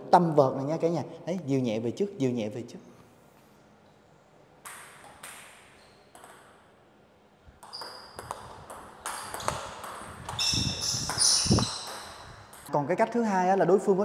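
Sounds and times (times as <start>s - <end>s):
table tennis ball clicking: 4.6s - 6.6s.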